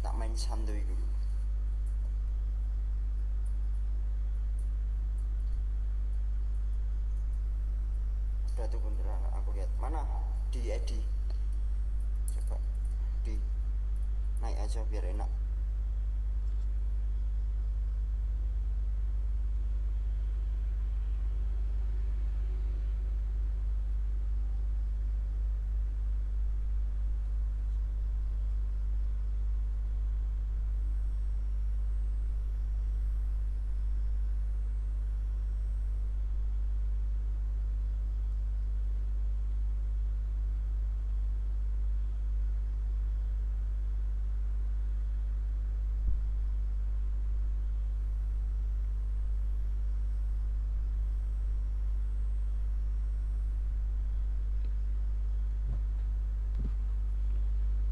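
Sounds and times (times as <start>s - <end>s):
steady low hum: 0.0s - 57.9s.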